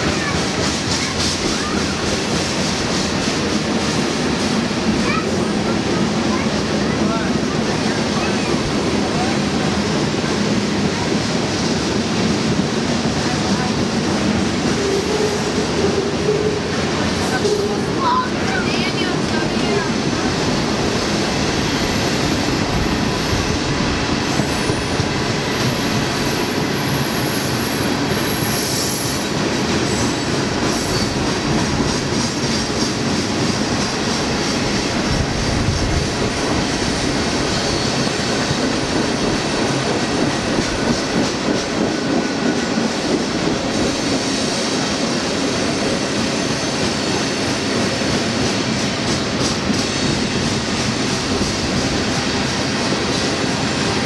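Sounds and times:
freight train cars rolling past: 0:00.0 - 0:54.0
high wheel squeal: 0:37.5 - 0:38.4.

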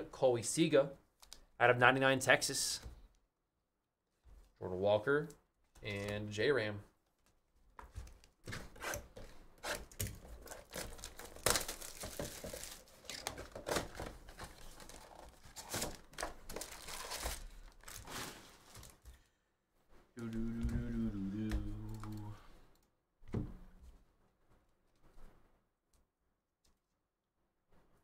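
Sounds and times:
person speaking: 0:04.6 - 0:06.9, 0:20.2 - 0:22.6
packaging crinkling: 0:10.3 - 0:19.1.

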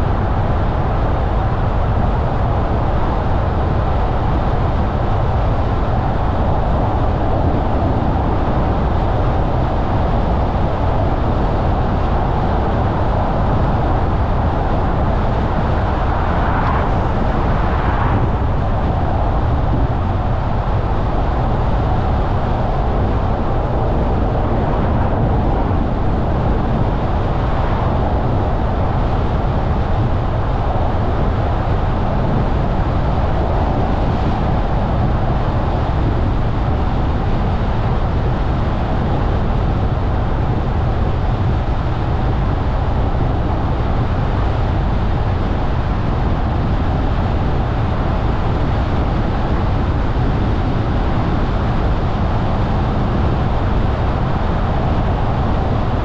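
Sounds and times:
car tyre and engine rumble: 0:00.0 - 0:36.8.

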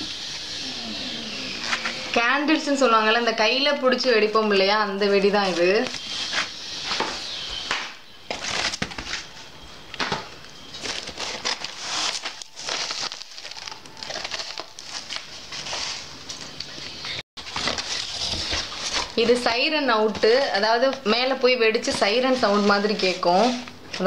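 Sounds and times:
cardboard rustling and scraping: 0:05.2 - 0:07.7, 0:08.3 - 0:16.6, 0:17.4 - 0:20.6, 0:21.7 - 0:24.0.

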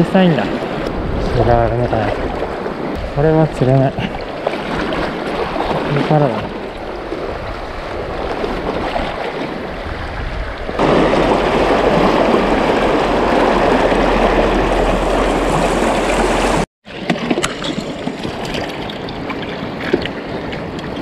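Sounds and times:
river water rushing: 0:10.8 - 0:16.7.

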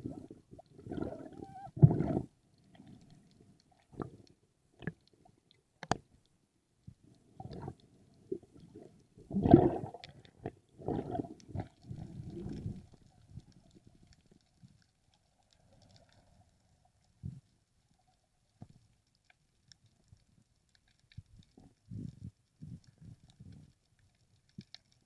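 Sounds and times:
underwater rushing water: 0:00.0 - 0:03.2, 0:07.2 - 0:14.8
faint clicks: 0:02.5 - 0:09.1, 0:11.4 - 0:25.0.

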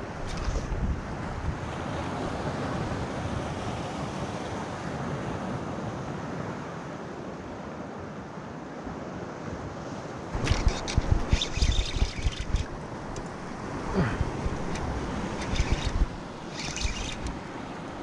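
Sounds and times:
wind noise on microphone: 0:00.0 - 0:03.4, 0:10.3 - 0:18.0
crackling rumble on microphone: 0:10.4 - 0:18.0
sea surf breaking on rocks: 0:12.2 - 0:18.0.

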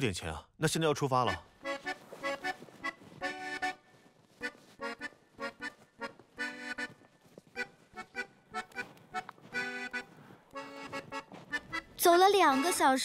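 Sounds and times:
light background music: 0:11.6 - 0:13.0.

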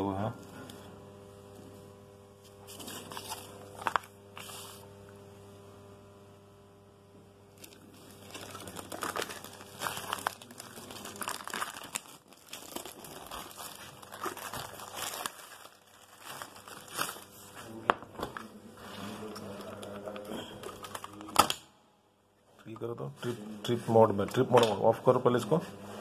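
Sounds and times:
paper and plastic crinkling: 0:02.6 - 0:04.8, 0:07.6 - 0:21.4.

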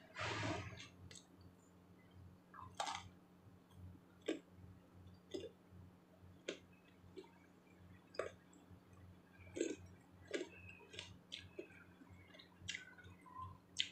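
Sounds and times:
faint low hum: 0:00.0 - 0:13.9
crunchy eating of salad: 0:05.2 - 0:05.6, 0:08.0 - 0:08.5, 0:09.4 - 0:13.9.

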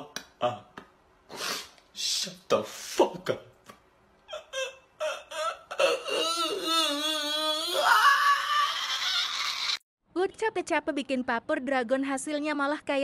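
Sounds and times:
breathy hiss: 0:01.3 - 0:03.1
person wailing: 0:04.3 - 0:09.7.

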